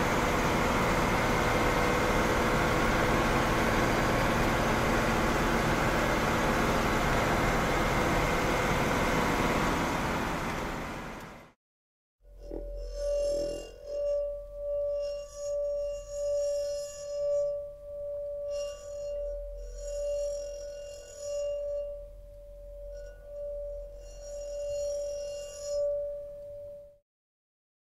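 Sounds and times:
singing bowl ringing tone: 0:12.3 - 0:27.0.

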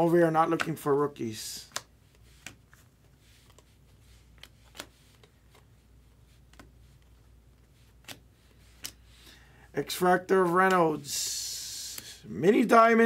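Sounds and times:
cards clicking when flipped: 0:00.5 - 0:00.9, 0:01.6 - 0:02.8, 0:04.3 - 0:05.7, 0:07.9 - 0:09.0.

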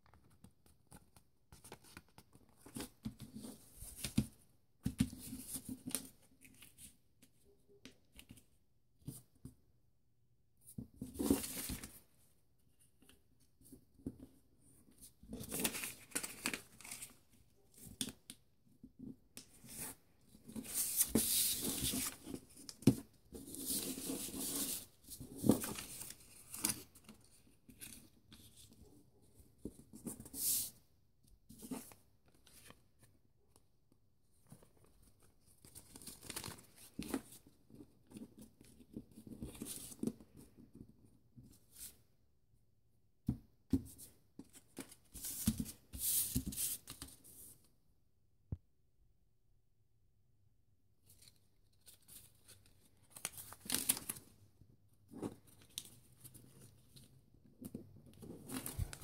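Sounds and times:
paper rustling and creasing: 0:15.3 - 0:17.2, 0:57.6 - 0:59.0.

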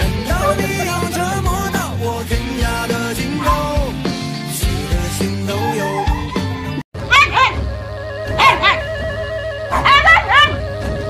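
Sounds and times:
background music: 0:00.0 - 0:11.0
dog yipping: 0:00.4 - 0:00.9, 0:03.4 - 0:03.8, 0:05.5 - 0:07.6, 0:08.3 - 0:09.0, 0:09.7 - 0:10.7.

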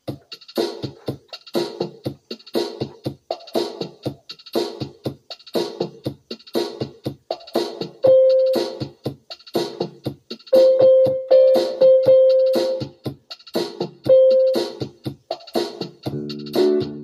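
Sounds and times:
drum machine beat: 0:00.0 - 0:17.0
electronic keyboard music: 0:07.4 - 0:09.0, 0:10.5 - 0:13.1, 0:13.8 - 0:17.0.

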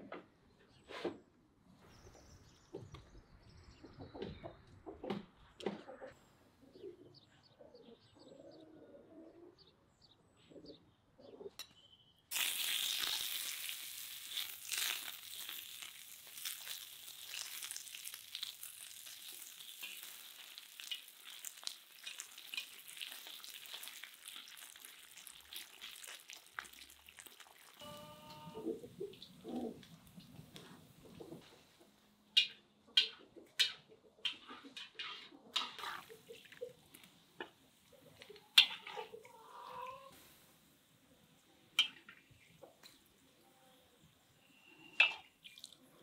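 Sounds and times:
faint bird chirps: 0:10.4 - 0:12.3, 0:43.3 - 0:45.6
fat sizzling in a pan: 0:12.3 - 0:28.3.

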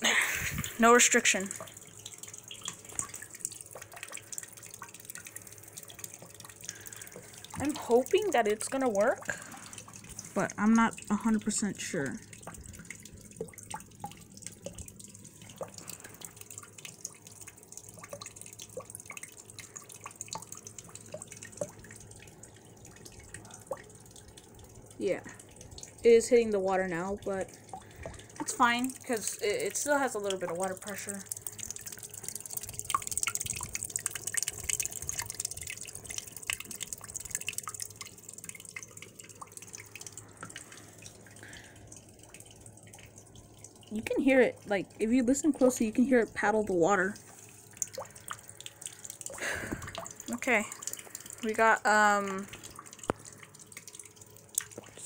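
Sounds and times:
drip-like plinks: 0:00.0 - 0:55.0
water splashing into a tub: 0:00.0 - 0:55.0
water wheel paddles splashing: 0:07.5 - 0:09.4.

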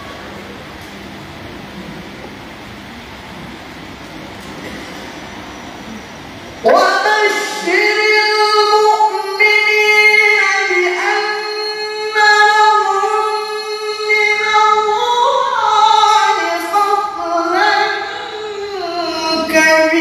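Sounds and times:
man reciting in melodic chant: 0:06.6 - 0:20.0.

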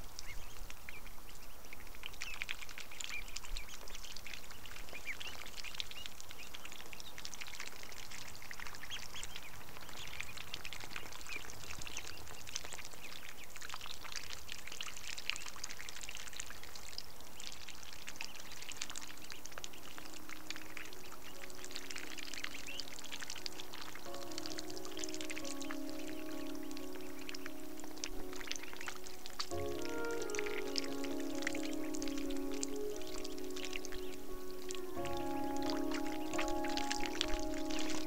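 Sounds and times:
ducks dabbling in water: 0:00.0 - 0:38.0
soft music: 0:18.1 - 0:38.0.

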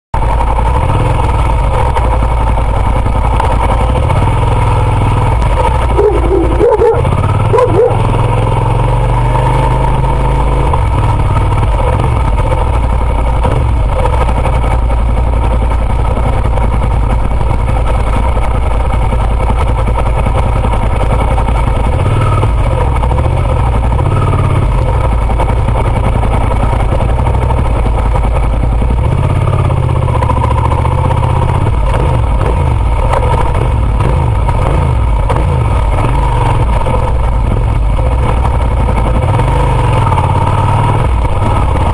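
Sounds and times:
motorcycle engine rumbling: 0:00.2 - 0:41.9
dog barking: 0:05.8 - 0:08.2.

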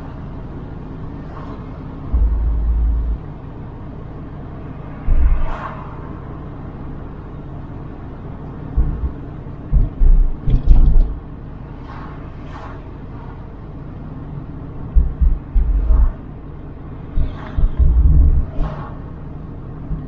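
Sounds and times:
car road and engine rumble: 0:00.0 - 0:20.0
loud short low thumps: 0:02.1 - 0:03.4, 0:08.8 - 0:11.2, 0:15.0 - 0:16.1.

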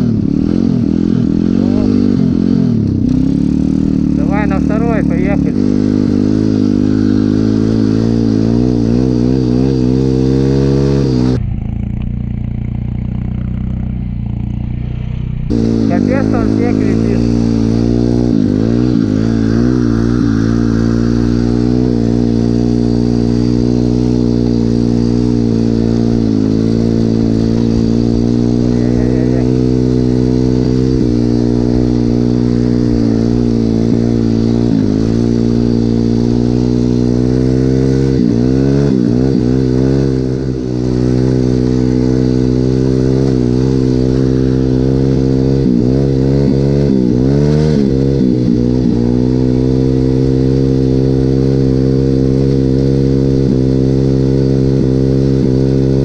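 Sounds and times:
motorbike engine running: 0:00.0 - 0:56.0.

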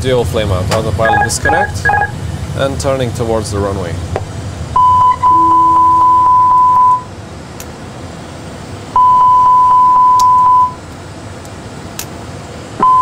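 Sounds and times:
steady high warning beep: 0:01.0 - 0:02.2, 0:04.8 - 0:07.1, 0:09.0 - 0:10.8, 0:12.8 - 0:13.0
lower warning tone: 0:01.0 - 0:02.3, 0:04.8 - 0:07.1, 0:09.0 - 0:10.8.

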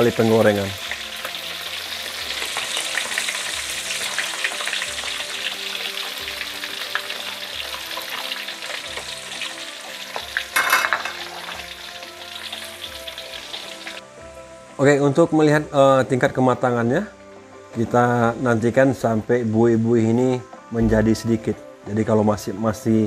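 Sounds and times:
meat deep-frying in oil: 0:00.0 - 0:14.0.

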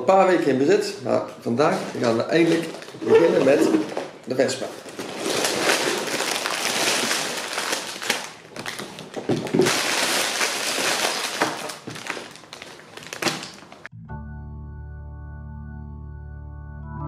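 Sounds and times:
plastic bags crinkling: 0:01.1 - 0:13.9.

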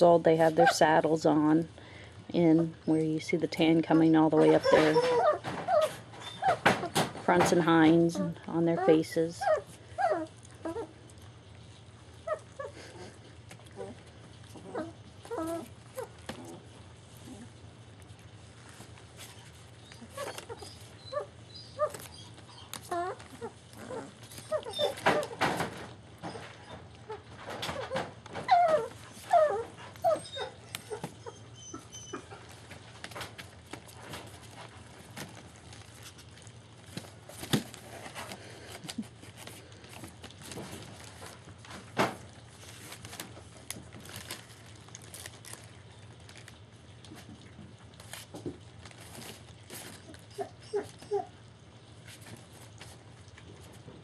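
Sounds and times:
faint steady hum: 0:00.0 - 0:54.0
puppies eating from metal pan: 0:02.4 - 0:54.0
puppies whimpering: 0:03.8 - 0:06.7, 0:08.2 - 0:11.0, 0:12.2 - 0:17.6, 0:19.3 - 0:25.5, 0:26.2 - 0:32.8, 0:50.1 - 0:51.5.

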